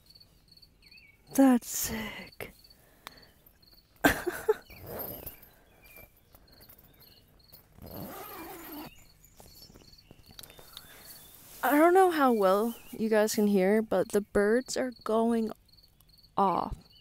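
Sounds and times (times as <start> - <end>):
tent zip being worked: 4.7 - 5.4, 7.7 - 9.0
tent fabric rustling: 7.7 - 13.0.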